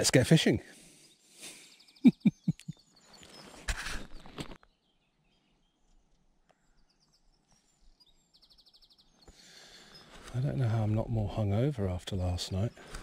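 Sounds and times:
brief rustle: 0:03.2 - 0:04.6.

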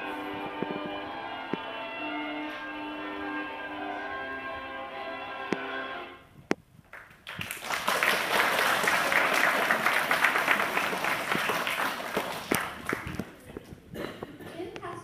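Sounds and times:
music: 0:00.0 - 0:06.3
audience applause: 0:06.9 - 0:13.5.

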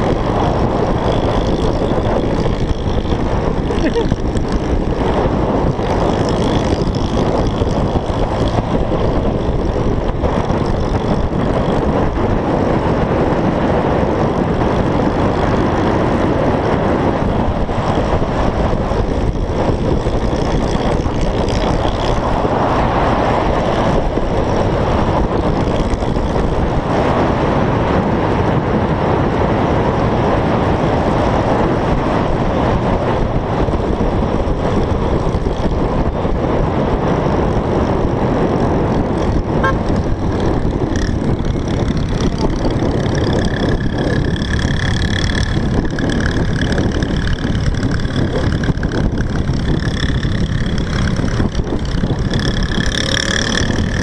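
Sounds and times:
scooter engine running: 0:00.0 - 0:54.0
wind buffeting microphone: 0:00.0 - 0:54.0.

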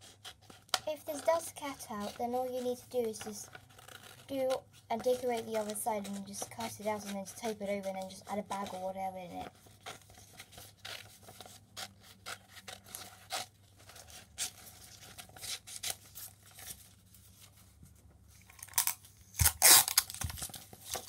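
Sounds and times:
scissors snipping paper: 0:00.0 - 0:16.8
paper rustling: 0:00.0 - 0:21.0.

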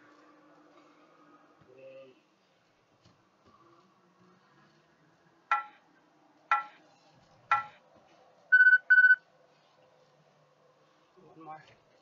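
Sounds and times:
interval timer beeps: 0:05.5 - 0:05.8, 0:06.5 - 0:06.8, 0:07.5 - 0:07.8, 0:08.5 - 0:09.2.

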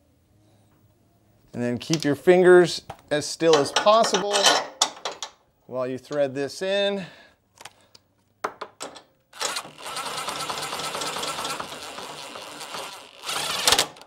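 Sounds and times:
impact driver rattling: 0:09.4 - 0:14.0.

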